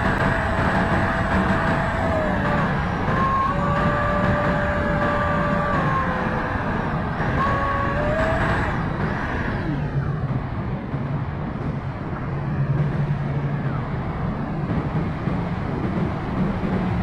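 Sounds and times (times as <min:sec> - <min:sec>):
model jet fan whining: 0:00.0 - 0:10.2
wind rush on microphone: 0:00.0 - 0:17.0.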